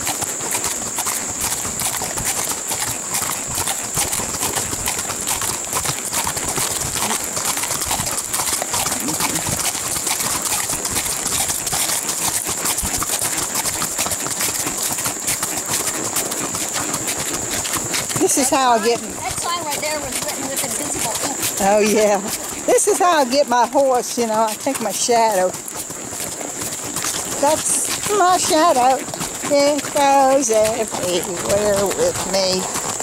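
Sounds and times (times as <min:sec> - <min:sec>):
hooves clip-clopping on gravel: 0:00.0 - 0:33.0.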